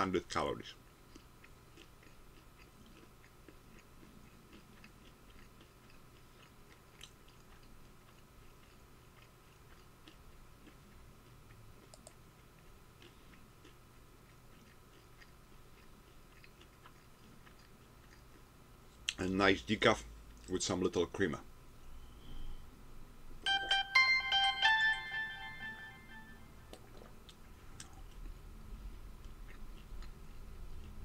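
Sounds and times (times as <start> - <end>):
steady low hum: 0.0 - 31.0
chewing food with mouth closed: 0.8 - 19.2, 26.7 - 31.0.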